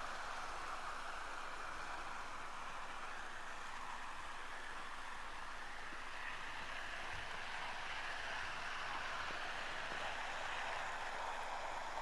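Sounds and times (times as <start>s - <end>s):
model train whirring on rails: 0.0s - 12.0s.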